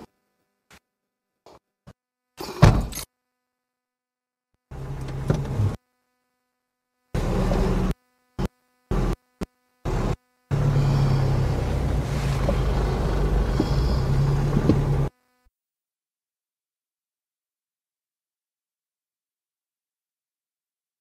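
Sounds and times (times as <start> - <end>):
car engine turning over and running: 4.7 - 5.8, 7.2 - 7.9, 9.9 - 15.1
vehicle door shutting: 4.8 - 5.8, 10.6 - 15.1.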